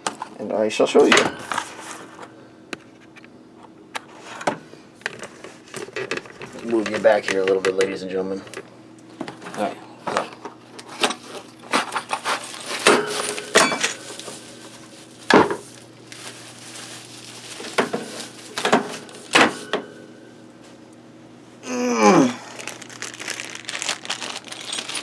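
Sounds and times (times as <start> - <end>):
plastic packaging crinkling: 12.0 - 19.3, 22.2 - 25.0
packaging clicks and knocks: 23.0 - 25.0.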